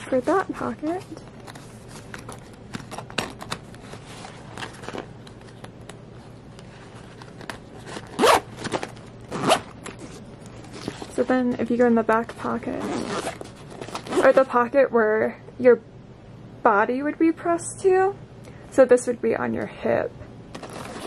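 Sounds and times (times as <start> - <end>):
zipper zipping: 7.9 - 8.5, 9.3 - 10.2, 12.7 - 14.4.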